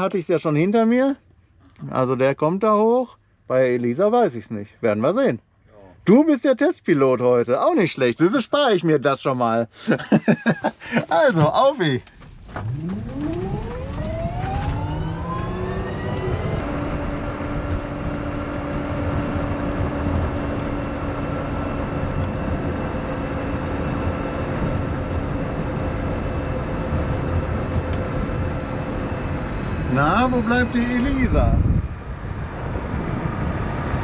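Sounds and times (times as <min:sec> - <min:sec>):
road and tyre rumble: 0:11.3 - 0:34.0
electric motor whining: 0:12.4 - 0:31.8.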